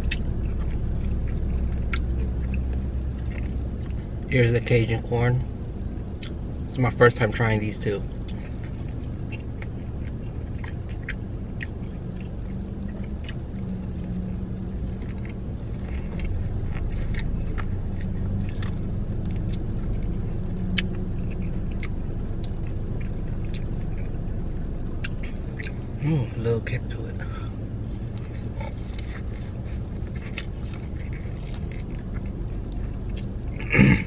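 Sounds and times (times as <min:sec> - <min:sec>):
low rumble: 0:00.0 - 0:34.0
crunchy corn bites: 0:07.0 - 0:24.2, 0:27.4 - 0:34.0.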